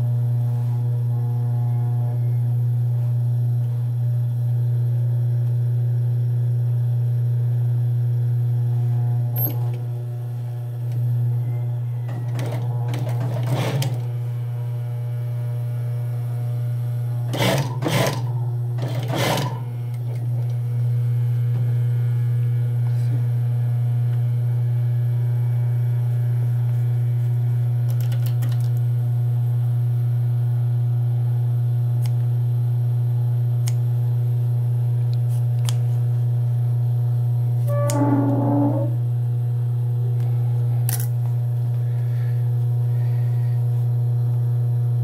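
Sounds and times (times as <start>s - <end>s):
sewing machine motor humming: 12.1s - 14.1s, 17.2s - 20.4s.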